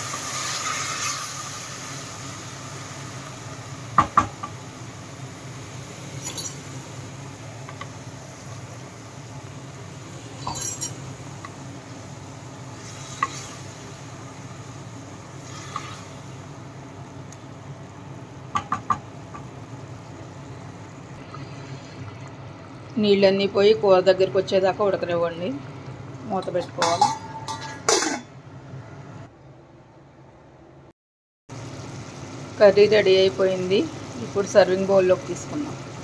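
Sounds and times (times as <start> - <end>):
spatula knocking against pan: 18.5 - 19.0.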